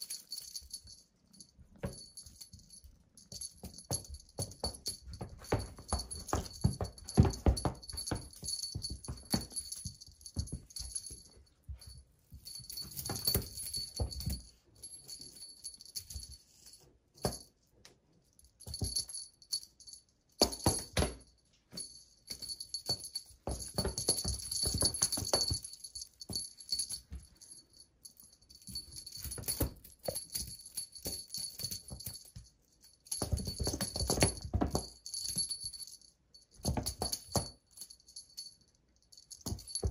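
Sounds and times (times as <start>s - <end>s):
small bell jingling: 0.0s - 39.9s
soft handling knocks and rustles: 3.3s - 17.6s, 20.4s - 27.6s.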